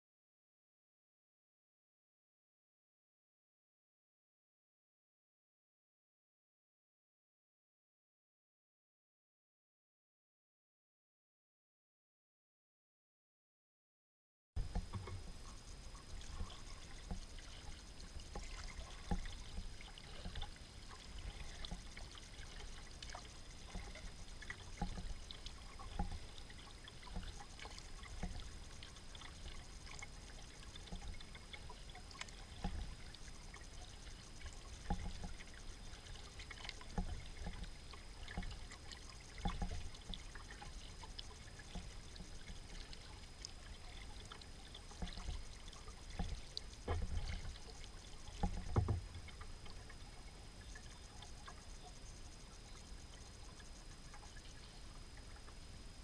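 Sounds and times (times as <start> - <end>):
small splashes and drips: 14.6 - 55.6
low steady rumble: 14.6 - 56.0
paddle strokes in water: 14.6 - 56.0.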